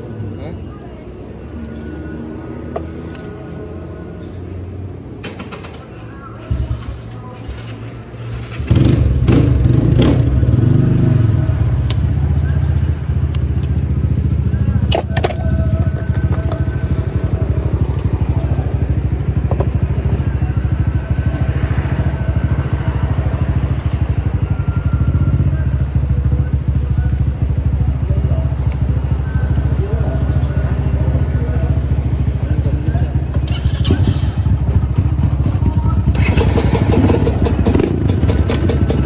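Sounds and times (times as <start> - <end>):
dirt bike engine idling: 11.2 - 39.0.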